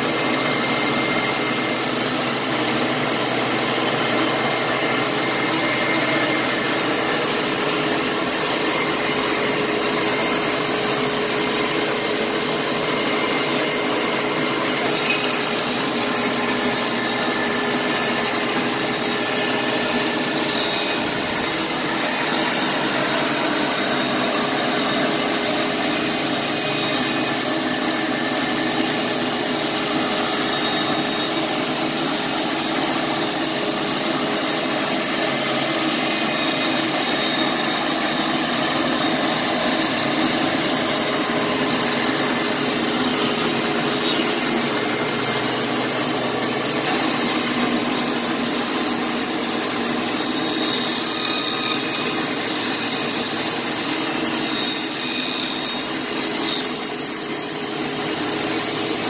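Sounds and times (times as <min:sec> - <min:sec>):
band sawmill drone: 0:00.0 - 0:59.0.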